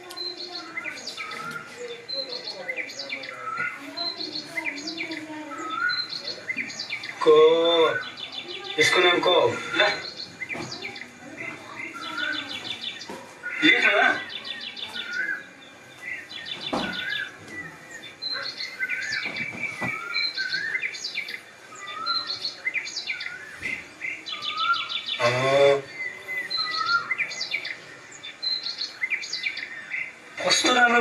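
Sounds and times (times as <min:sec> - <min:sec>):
birds chirping and trilling: 0:00.0 - 0:31.0
lower bird call: 0:16.2 - 0:30.3.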